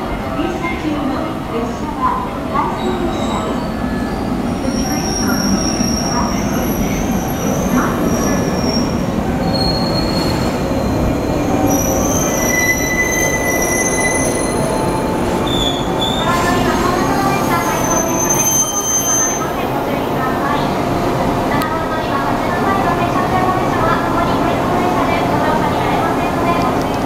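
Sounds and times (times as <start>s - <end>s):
train wheels squealing: 2.8s - 19.6s.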